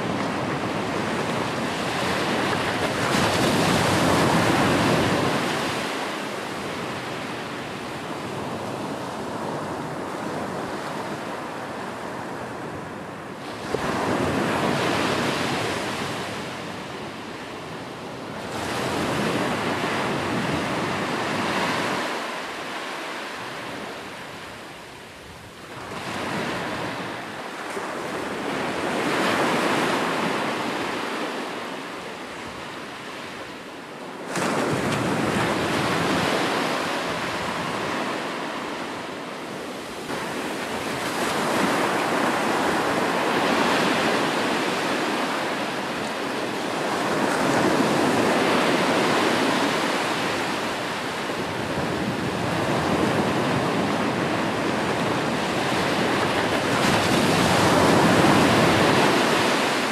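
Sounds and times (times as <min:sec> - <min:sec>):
ocean waves breaking: 0:25.7 - 0:59.9.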